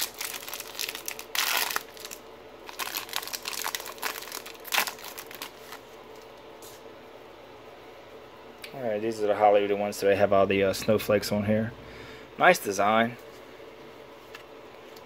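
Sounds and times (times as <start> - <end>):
foil wrapper tearing: 0.0 - 5.8
foil wrapper crinkling: 0.0 - 6.3.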